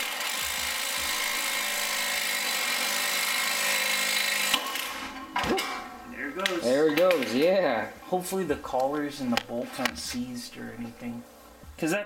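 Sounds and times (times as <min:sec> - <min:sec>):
power tool running: 0:00.0 - 0:05.1.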